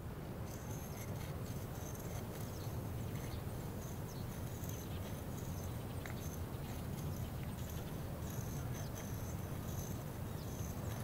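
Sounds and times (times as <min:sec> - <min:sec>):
low steady hum: 0:00.0 - 0:11.0
insects chirping: 0:00.4 - 0:11.0.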